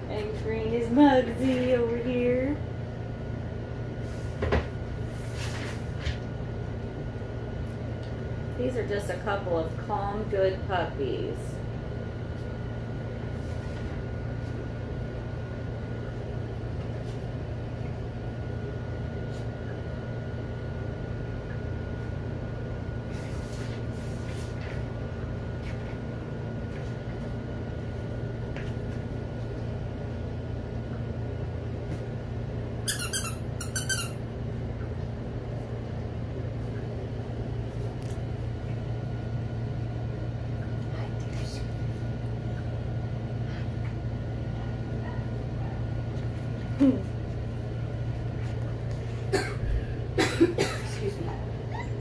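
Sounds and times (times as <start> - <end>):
machine hum: 0.0 - 52.0
high squeaks: 32.9 - 34.2.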